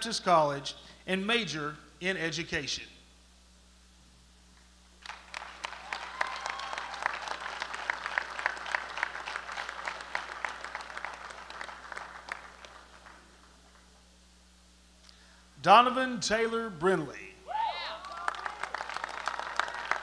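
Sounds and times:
audience applauding: 5.0 - 13.9, 17.9 - 20.0.

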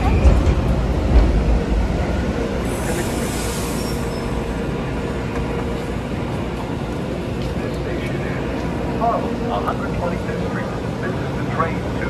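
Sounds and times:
electric train rumble and hum: 0.0 - 12.0
train air hiss: 2.6 - 4.8.

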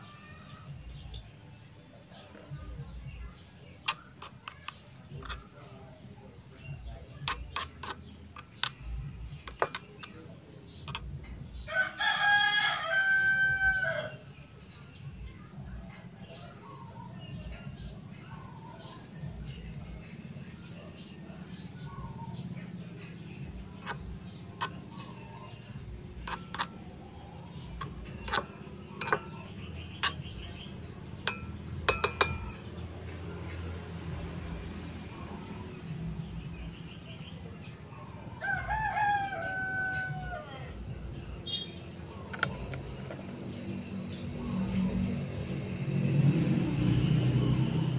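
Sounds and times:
spoon stirring in metal wok: 3.8 - 5.5, 7.2 - 10.2, 23.6 - 32.7
rooster crowing: 11.7 - 14.2, 38.4 - 40.6
metal spatula clinking on wok: 31.2 - 32.6.

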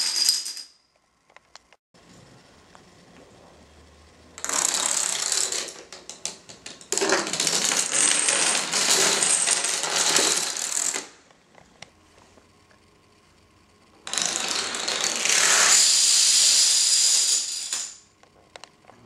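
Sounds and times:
dominoes toppling on wooden floor: 0.0 - 0.6, 4.4 - 11.1, 14.1 - 18.0.

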